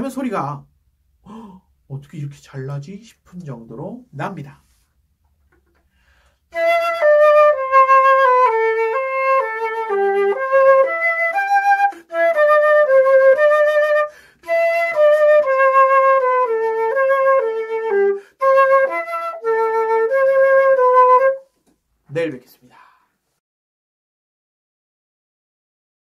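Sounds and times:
flute melody: 0:06.5 - 0:21.5.

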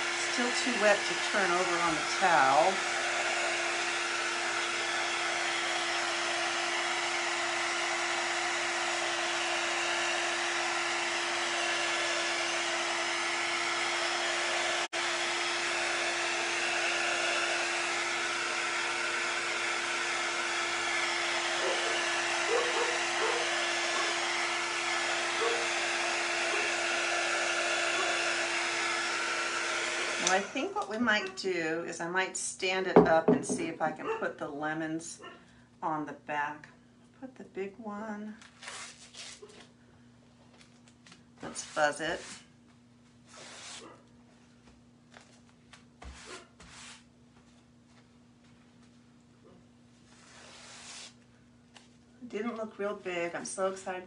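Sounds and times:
heat tool blowing: 0:00.0 - 0:31.3, 0:41.4 - 0:42.4, 0:50.2 - 0:51.2.

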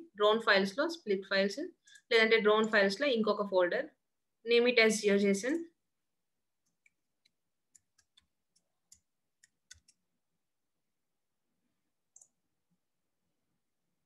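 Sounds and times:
keyboard typing: 0:06.6 - 0:10.1.

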